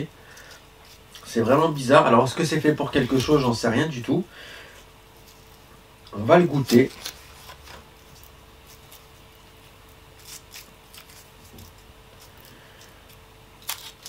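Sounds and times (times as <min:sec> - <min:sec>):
foil wrapper crinkling: 0:06.5 - 0:09.2, 0:09.8 - 0:14.0.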